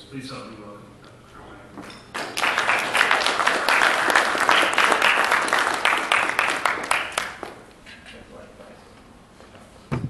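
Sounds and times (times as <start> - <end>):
audience applauding: 2.1 - 7.6.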